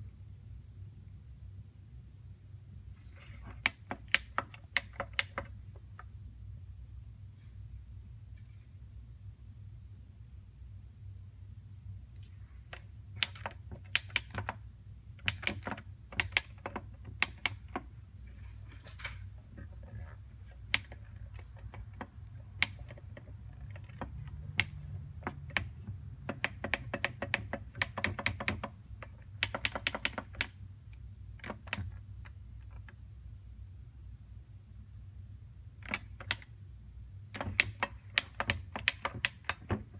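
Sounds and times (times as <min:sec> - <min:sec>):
steady low hum: 0:00.0 - 0:39.9
plastic buttons clicking: 0:03.3 - 0:05.6, 0:12.7 - 0:14.6, 0:15.2 - 0:17.9, 0:20.4 - 0:30.6, 0:31.4 - 0:33.0, 0:35.8 - 0:36.6, 0:37.3 - 0:39.9.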